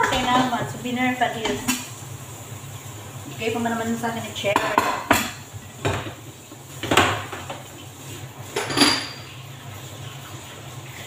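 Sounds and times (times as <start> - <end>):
pots and bowl clanking: 0.0 - 2.0, 4.5 - 6.2, 6.8 - 7.8, 8.5 - 9.4.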